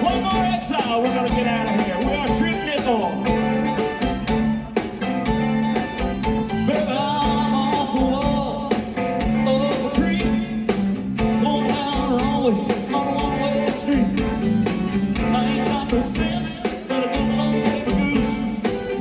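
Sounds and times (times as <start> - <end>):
rock band playing: 0.0 - 19.0
person singing: 6.6 - 10.7, 11.3 - 14.4, 15.2 - 19.0.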